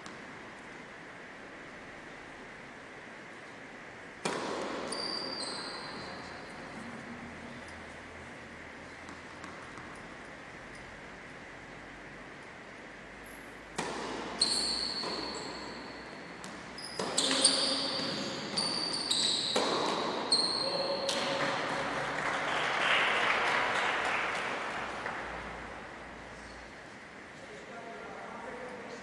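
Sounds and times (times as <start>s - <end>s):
tennis ball bouncing on court: 4.2s - 5.2s, 9.0s - 10.2s, 13.7s - 20.4s
tennis racquet strikes: 4.2s - 5.2s, 9.0s - 10.8s, 13.6s - 18.7s, 19.3s - 20.2s
applause: 21.1s - 25.6s.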